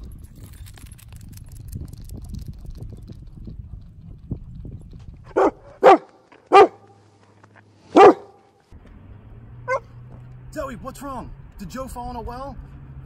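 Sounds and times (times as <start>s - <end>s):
dog barking: 5.3s - 6.9s, 7.9s - 8.4s, 9.7s - 9.9s.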